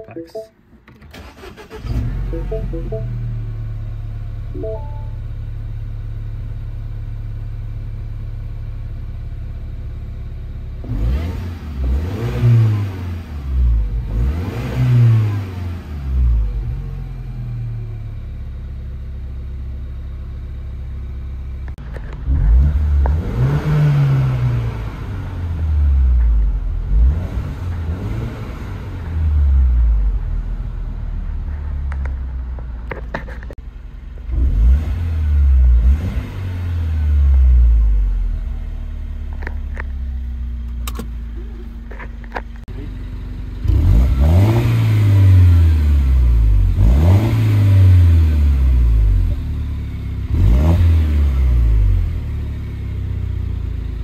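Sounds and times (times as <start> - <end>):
car engine accelerating: 10.6 - 18.3, 21.6 - 54.0.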